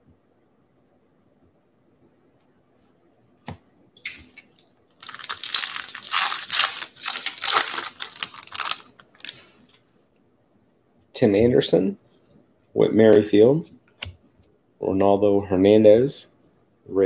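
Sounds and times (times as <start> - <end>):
foil wrapper tearing and crinkling: 5.0 - 9.5.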